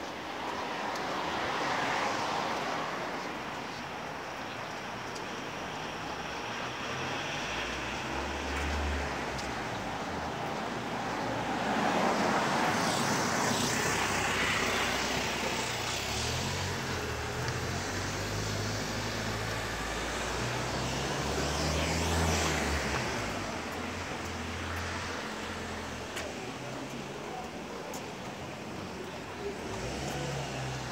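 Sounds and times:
cars driving past: 6.5 - 30.9.

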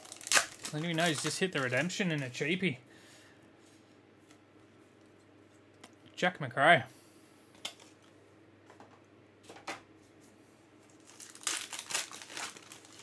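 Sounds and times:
wrapper crinkling and tearing: 0.0 - 2.4, 10.9 - 13.0.

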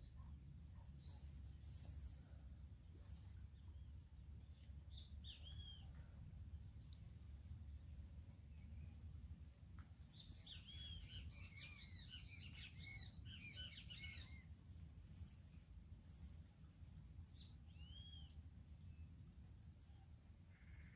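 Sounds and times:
birds chirping: 0.0 - 16.6
low steady rumble: 0.0 - 20.9.

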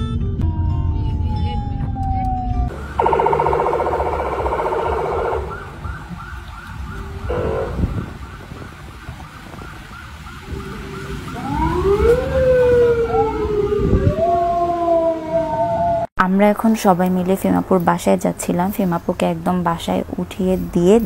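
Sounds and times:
electronic siren yelp: 0.4 - 16.1
siren wails: 0.4 - 16.1
siren quick pulsing: 0.5 - 8.5, 9.2 - 14.3.

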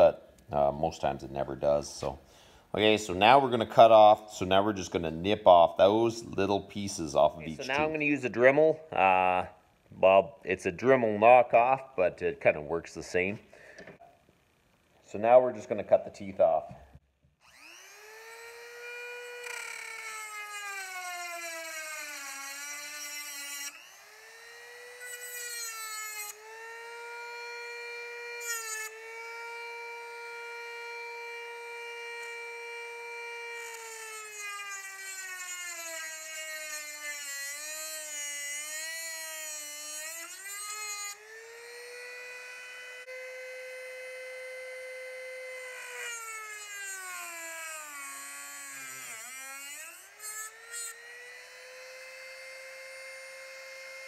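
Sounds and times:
rotary tool grinding metal: 17.4 - 54.0.

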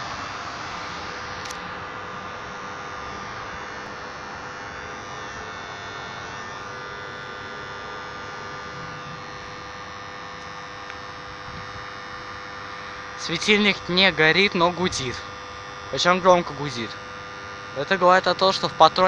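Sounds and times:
ballast choke humming loudly: 0.0 - 19.0.

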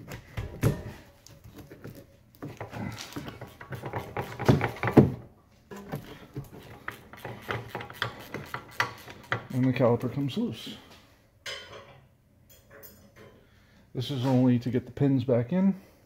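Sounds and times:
ratchet wrench clicking: 6.8 - 10.1.

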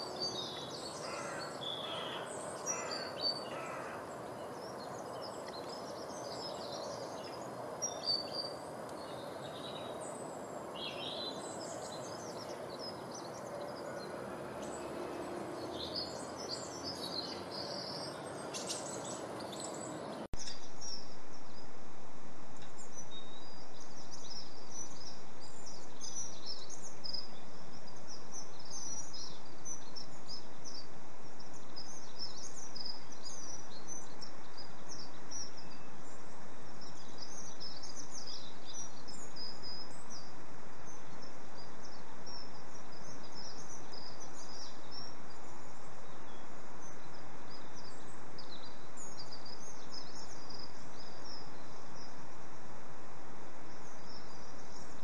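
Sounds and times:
songbirds chirping and singing: 0.0 - 21.0
steady background hiss: 0.0 - 55.0.

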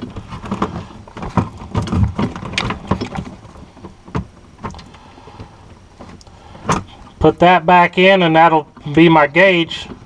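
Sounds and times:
clicks and rustles of wiring connectors: 0.0 - 7.4.

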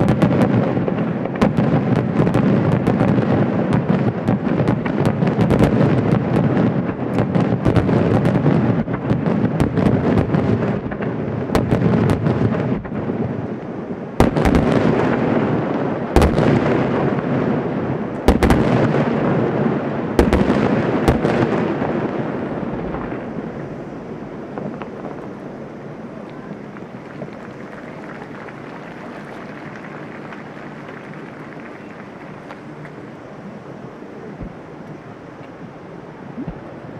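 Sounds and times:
sharp firework booms: 0.0 - 25.3
fireworks bursting and crackling: 0.0 - 35.7, 36.3 - 36.9.

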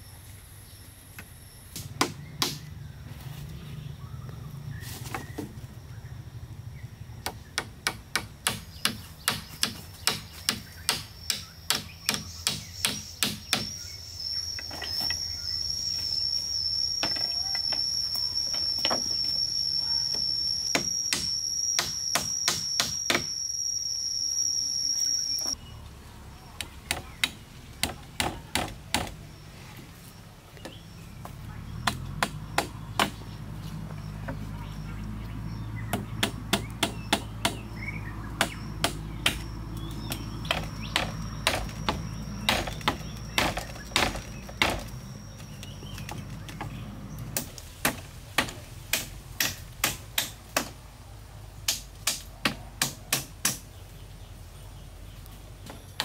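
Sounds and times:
hatchet striking wood: 1.8 - 2.7, 7.2 - 13.8, 20.7 - 23.3, 26.9 - 29.2, 31.8 - 33.2, 35.9 - 37.7, 38.4 - 44.9, 47.4 - 50.8, 51.7 - 53.7
high-pitched insect buzz: 14.0 - 25.6.

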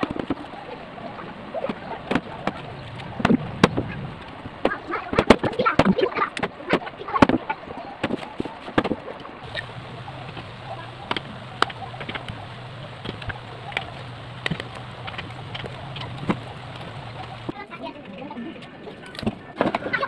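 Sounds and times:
steady low hum: 9.4 - 17.5.

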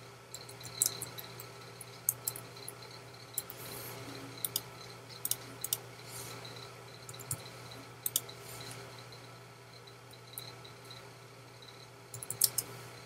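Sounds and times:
low steady hum: 0.0 - 13.0
keyboard keystrokes: 12.2 - 12.7.

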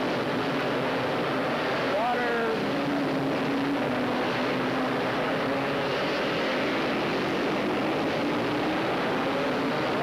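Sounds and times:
atv engines racing: 0.0 - 10.0.

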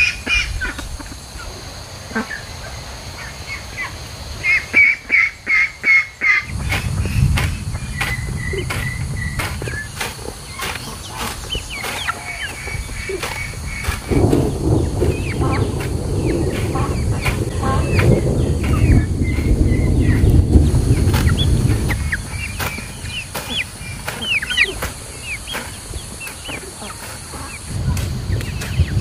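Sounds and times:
poultry chirping and clucking: 0.0 - 29.0
low rumble: 6.5 - 26.0
poultry honking: 10.5 - 27.8.

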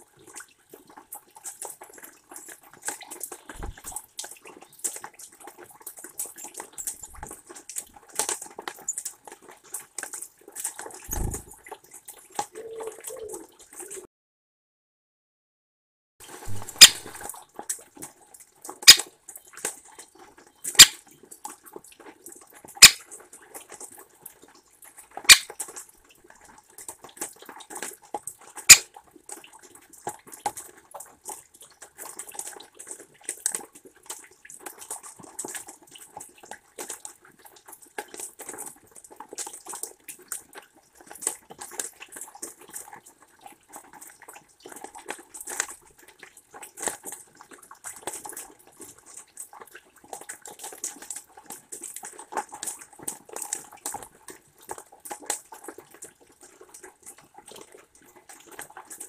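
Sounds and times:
rain pattering and dripping: 0.0 - 14.1, 16.2 - 59.0
woodpecker knocking on wood: 11.1 - 11.5, 16.5 - 17.2.

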